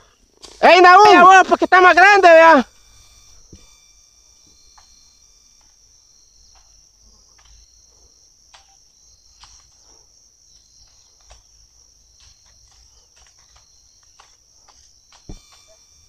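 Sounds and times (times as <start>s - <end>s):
insects chirring: 0.0s - 16.0s
faint clicks: 8.5s - 15.8s.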